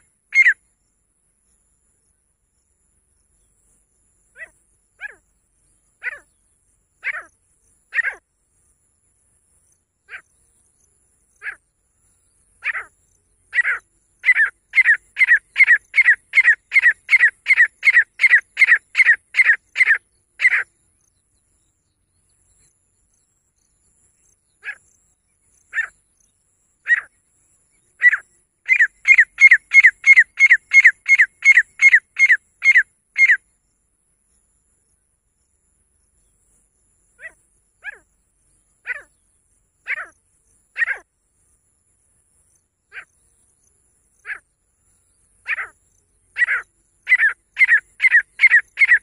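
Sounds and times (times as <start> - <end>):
francolin calling: 0.0 - 0.6, 3.4 - 8.8, 10.0 - 21.7, 23.6 - 33.6, 37.0 - 41.6, 42.4 - 49.0.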